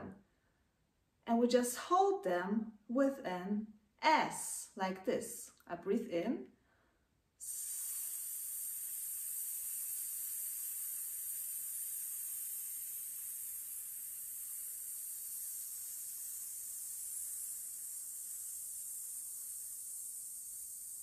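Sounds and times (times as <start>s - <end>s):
woman hissing through teeth: 7.4s - 21.0s.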